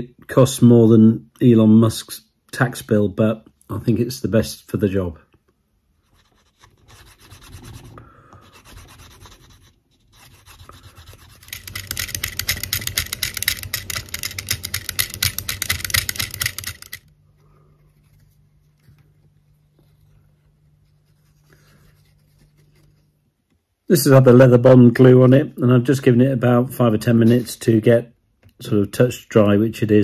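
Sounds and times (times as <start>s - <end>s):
metal tool scratching leather: 6.1s - 17.0s
wooden burnisher rubbing leather: 6.1s - 17.0s
faint handling sounds: 10.0s - 23.8s.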